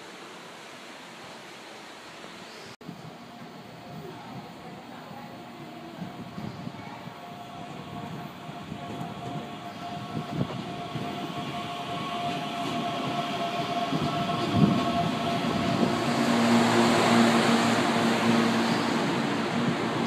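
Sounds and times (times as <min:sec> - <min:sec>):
train rumble: 0:02.8 - 0:20.0.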